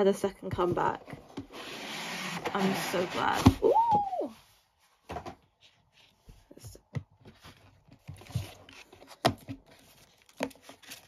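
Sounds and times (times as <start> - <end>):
paper and card rustling: 7.2 - 11.0.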